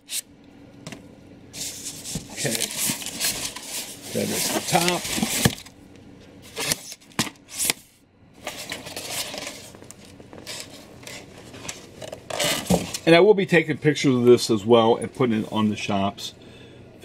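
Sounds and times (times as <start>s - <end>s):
styrofoam rubbing and rustling: 1.6s - 5.7s.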